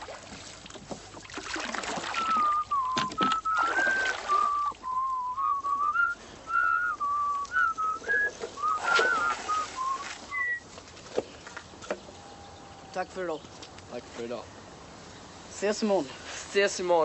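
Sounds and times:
person whistling a tune: 2.2s - 10.6s.

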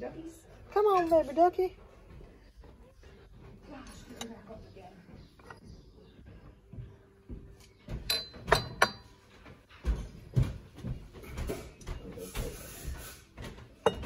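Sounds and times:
ceramic crockery clinking: 7.9s - 9.2s, 13.8s - 14.0s
crockery handling knocks: 7.9s - 9.2s, 13.8s - 14.0s.

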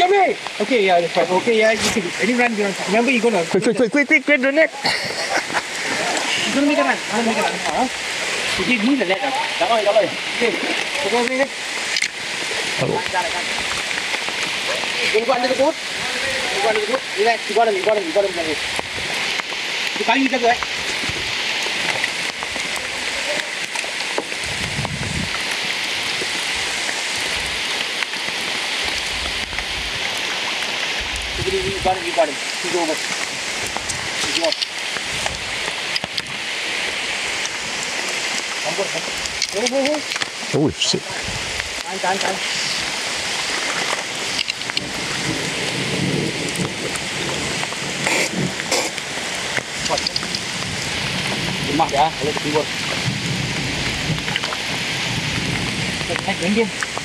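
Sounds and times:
heavy rain on river: 0.0s - 57.0s
thunder rumbling: 20.3s - 38.1s, 40.7s - 57.0s.

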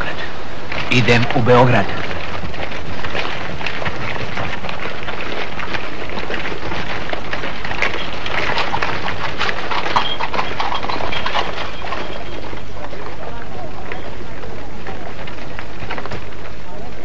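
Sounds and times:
hooves clip-clopping on pavement: 0.0s - 17.0s
low hum: 0.0s - 17.0s.

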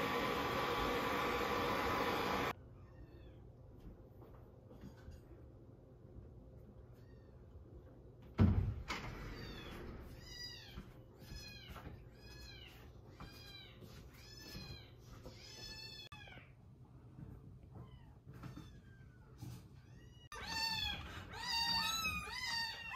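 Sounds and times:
thump: 8.4s - 9.0s.

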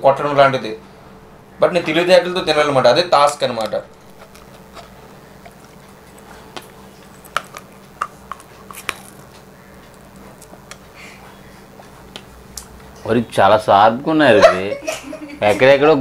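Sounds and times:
faint steady hum: 0.0s - 16.0s
teeth cracking crab shell: 4.0s - 10.9s.

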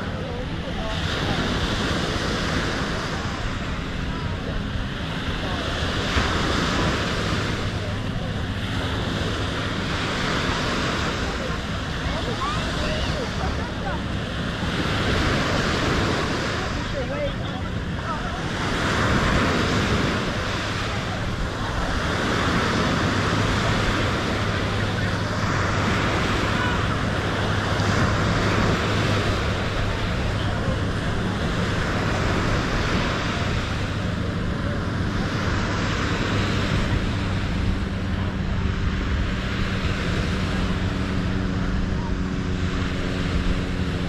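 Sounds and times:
faint voices: 0.0s - 44.0s
low engine drone: 0.0s - 44.0s
surf: 0.0s - 44.0s
wind: 0.0s - 44.0s.

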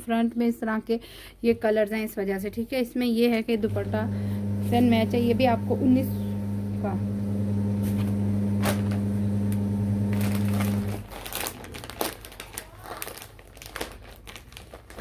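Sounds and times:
loud low hum: 3.6s - 11.0s
plastic packaging crinkling: 7.9s - 15.0s.

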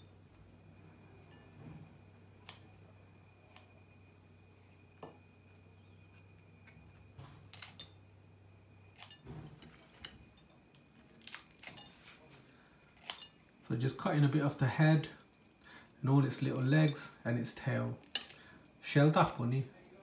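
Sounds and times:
steady low hum: 0.0s - 20.0s
kitchen scissors snipping: 2.4s - 3.8s, 7.4s - 8.0s, 8.9s - 10.5s, 11.1s - 11.9s, 12.9s - 13.4s.

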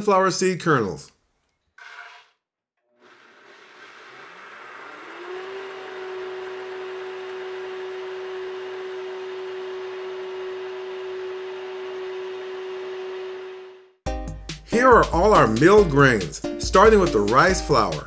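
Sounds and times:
blender motor whining: 2.8s - 14.0s.

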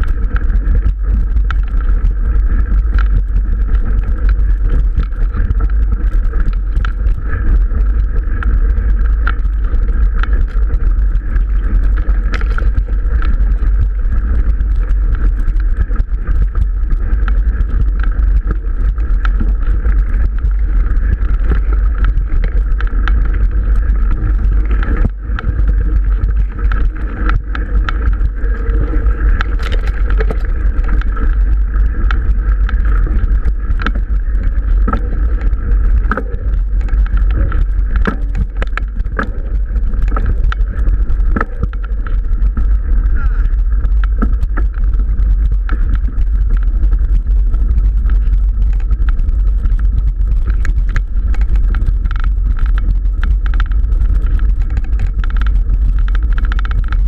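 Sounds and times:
bike rattling clicks: 0.0s - 57.0s
wind and vibration rumble: 0.0s - 57.0s.

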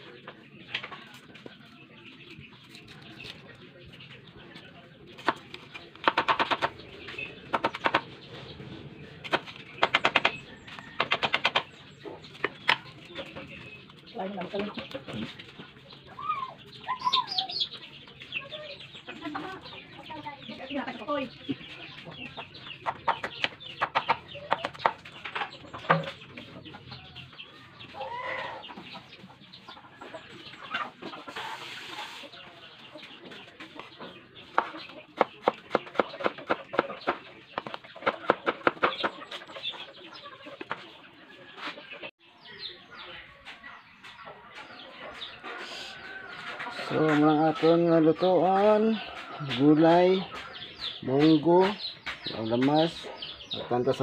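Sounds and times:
chickens clucking: 0.0s - 54.0s
cleaver chopping on wooden board: 6.0s - 6.7s, 9.3s - 10.4s, 34.6s - 36.9s
knife chopping on wooden board: 37.6s - 39.1s.

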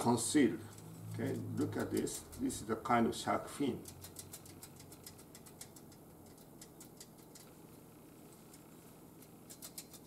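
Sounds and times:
light mechanical clicking: 3.4s - 7.6s.

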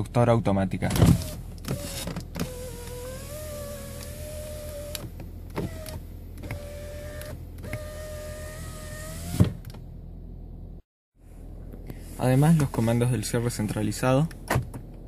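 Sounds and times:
electric car window motor whining: 1.1s - 9.7s.

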